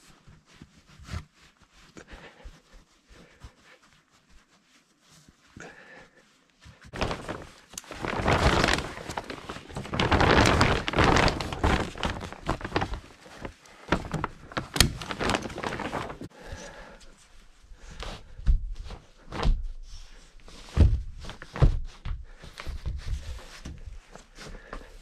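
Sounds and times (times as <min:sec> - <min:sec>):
plastic sheeting rustling: 0:06.6 - 0:25.0
knocks and thumps: 0:20.7 - 0:22.2.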